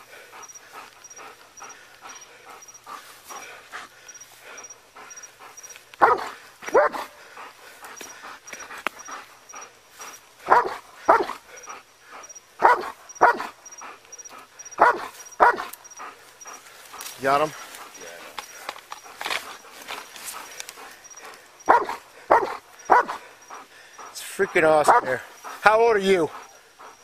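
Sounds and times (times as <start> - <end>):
dog barking: 6.0 - 7.2, 10.4 - 11.4, 12.6 - 13.6, 14.8 - 15.7, 21.6 - 23.3, 24.8 - 25.2.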